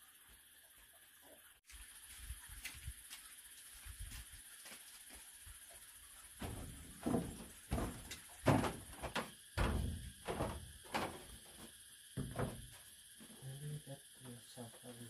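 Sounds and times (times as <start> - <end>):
steady high hiss: 1.7 - 15.0
irregular knocks and thuds: 6.4 - 12.9.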